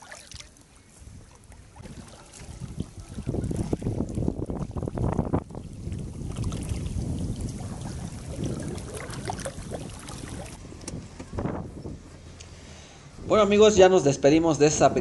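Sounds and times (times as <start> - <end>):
choppy water lapping: 0.0 - 10.6
wind buffeting microphone: 0.9 - 12.2.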